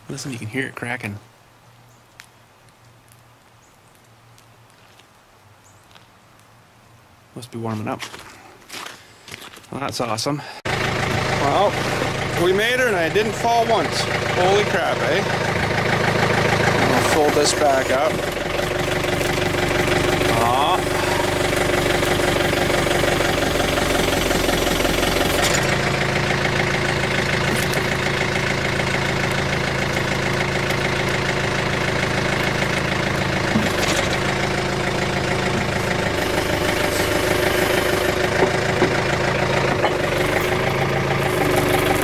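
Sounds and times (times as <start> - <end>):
diesel engine running: 10.7 - 42.0.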